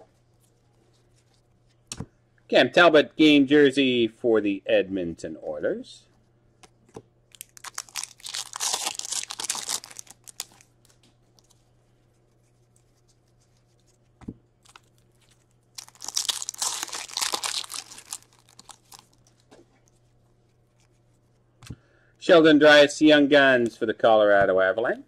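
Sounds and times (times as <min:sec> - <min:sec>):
foil wrappers crinkling and tearing: 0:07.3 - 0:11.6, 0:14.6 - 0:19.5.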